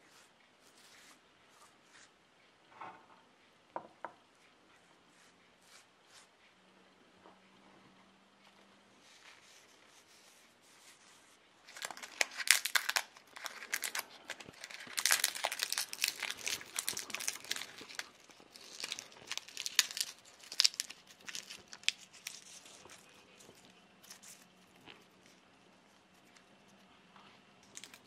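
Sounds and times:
dry leaves crumbling crackle: 0:11.7 - 0:23.1.

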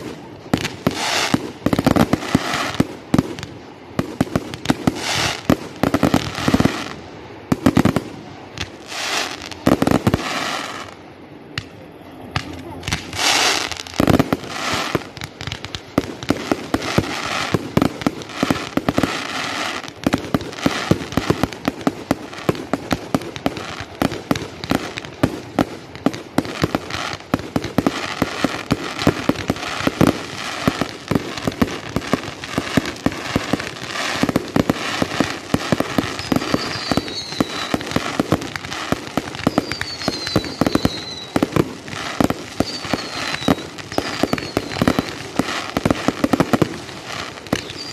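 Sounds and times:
firework bangs and crackles: 0:00.0 - 0:47.9
falling firework whistles: 0:26.6 - 0:47.9.

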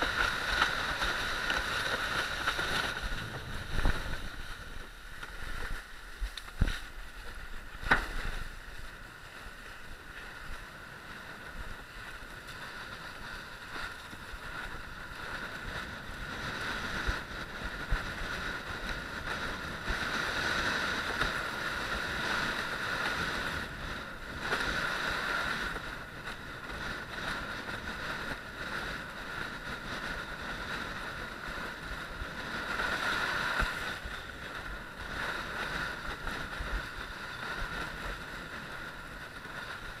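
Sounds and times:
water rushing under board: 0:00.0 - 0:40.0
wind on microphone: 0:00.0 - 0:40.0.

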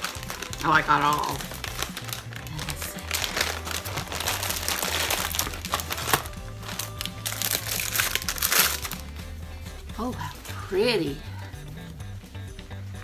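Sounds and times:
plastic bag crinkling: 0:00.0 - 0:09.1
background music with low bass: 0:00.0 - 0:13.0.

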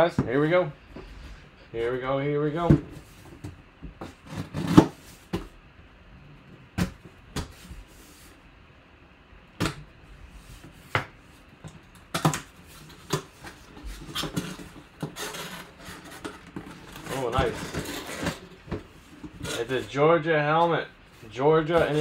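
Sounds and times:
cardboard knocks and scrapes: 0:21.7 - 0:22.0.

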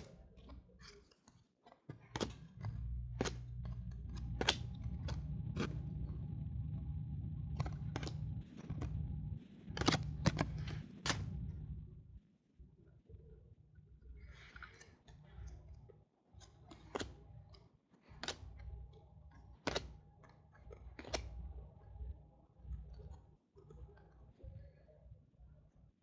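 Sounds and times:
trading cards snapping: 0:01.9 - 0:06.8, 0:07.4 - 0:11.7, 0:16.4 - 0:17.2, 0:18.1 - 0:18.8, 0:19.4 - 0:20.0, 0:20.7 - 0:21.5
low steady hum: 0:01.9 - 0:26.0.

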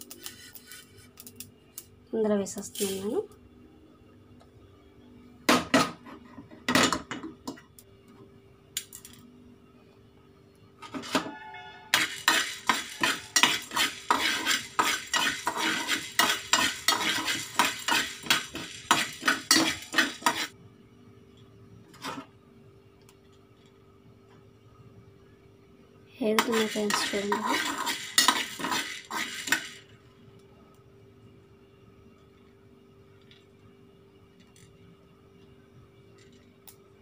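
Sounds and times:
spoon scraping peppercorns in pan: 0:00.0 - 0:01.2, 0:02.6 - 0:03.1, 0:11.9 - 0:20.6, 0:26.2 - 0:29.9.

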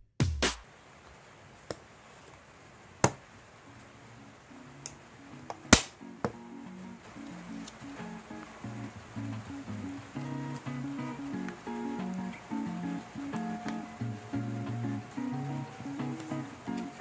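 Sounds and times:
soft background music: 0:03.7 - 0:17.0.

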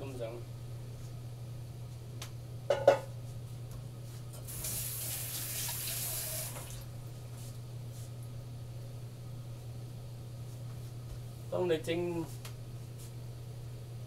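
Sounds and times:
steady low hum: 0:00.0 - 0:05.1, 0:06.4 - 0:14.0
water tap running: 0:04.5 - 0:06.9.

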